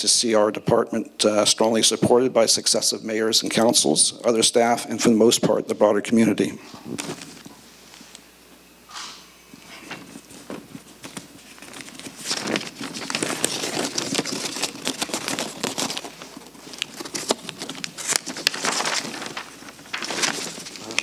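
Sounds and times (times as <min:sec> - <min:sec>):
paper rustling and crinkling: 0:06.9 - 0:07.5, 0:09.8 - 0:21.0.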